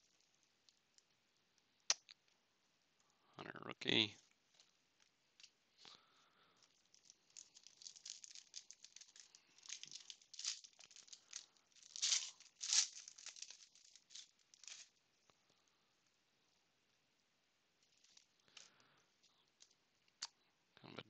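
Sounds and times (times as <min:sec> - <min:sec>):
foil wrapper tearing and crinkling: 0:06.6 - 0:14.9.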